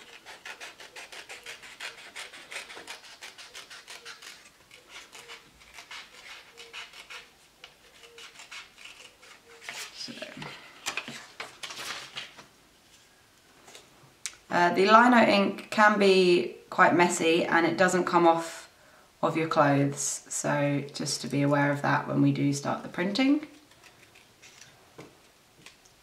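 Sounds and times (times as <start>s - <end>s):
scissors snipping paper: 0.0s - 10.1s
paper rustling: 0.0s - 13.9s, 23.6s - 24.8s.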